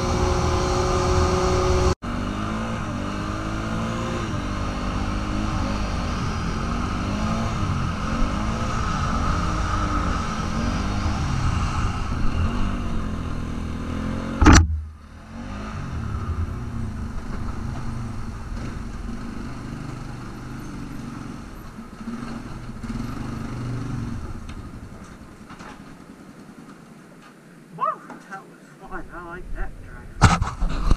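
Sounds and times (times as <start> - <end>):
atv engine revving: 0.0 - 26.0
sharp loud knock: 14.4 - 15.0.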